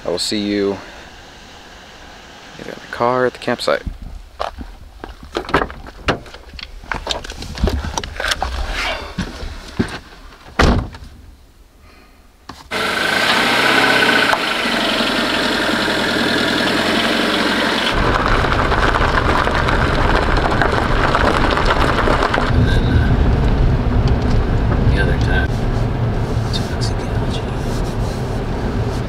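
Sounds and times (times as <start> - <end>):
car door thudding shut: 10.6 - 11.1
car engine running: 12.7 - 29.0
deep low rumble: 17.9 - 29.0.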